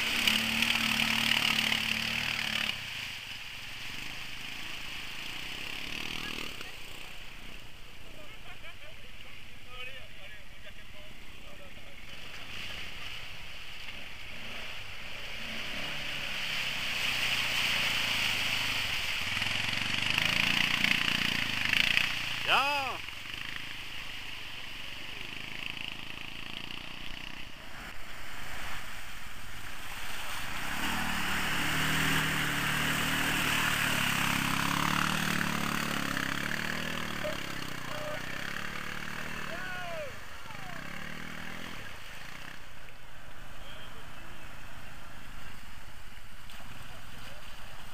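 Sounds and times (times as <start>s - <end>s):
water splashing and sloshing: 0.0s - 5.5s, 12.0s - 22.4s, 27.0s - 35.8s, 44.5s - 47.9s
quad bike engine running: 0.0s - 27.9s, 30.4s - 45.5s.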